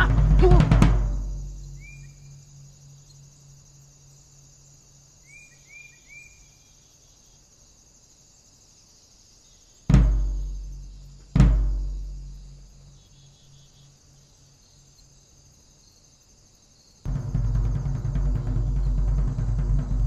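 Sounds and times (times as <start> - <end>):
drum and music hit: 0.0 - 2.0, 9.9 - 12.9, 17.1 - 20.0
high insect drone: 0.0 - 20.0
short bird chirps: 1.6 - 2.4
low hum: 17.1 - 20.0.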